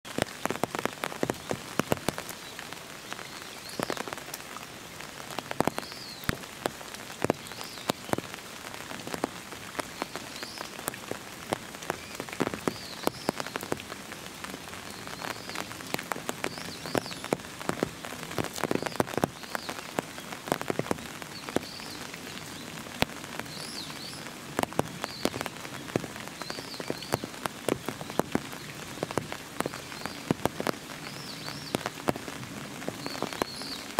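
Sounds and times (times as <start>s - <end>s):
rain falling: 0.0s - 33.9s.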